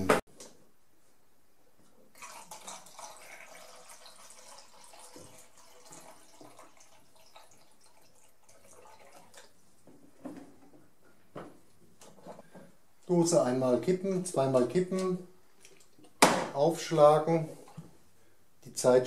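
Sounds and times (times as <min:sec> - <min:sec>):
water trickling and splashing: 0:02.2 - 0:09.6.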